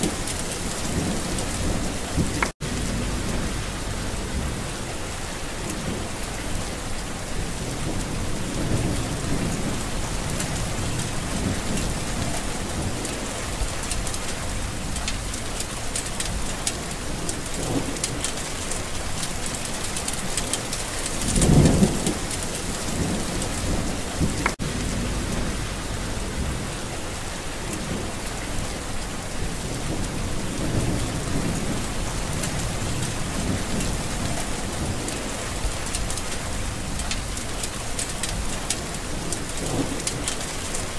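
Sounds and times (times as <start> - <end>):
low roll of thunder: 0.0 - 15.5, 20.4 - 37.4
steady rain falling: 0.0 - 40.9.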